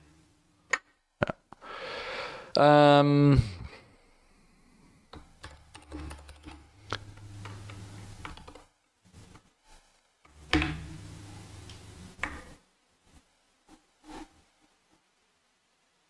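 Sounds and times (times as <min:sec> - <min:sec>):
computer keyboard keystrokes: 0:05.2 - 0:07.0
low hum: 0:10.4 - 0:12.6.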